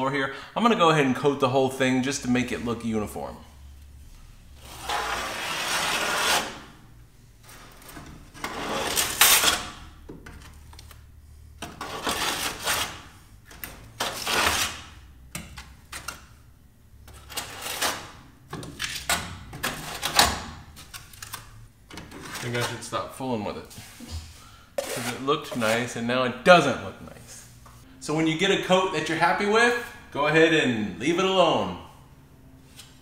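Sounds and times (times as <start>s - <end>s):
knife scraping mortar: 24.8s - 26.0s.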